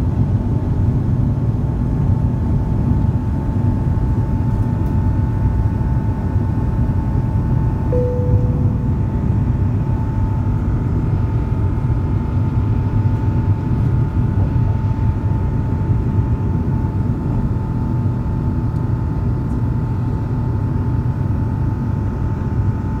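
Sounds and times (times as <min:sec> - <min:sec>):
jet engine rumble in cabin: 0:00.0 - 0:23.0
jet engine whine: 0:00.0 - 0:23.0
short ringing tone: 0:07.9 - 0:10.1.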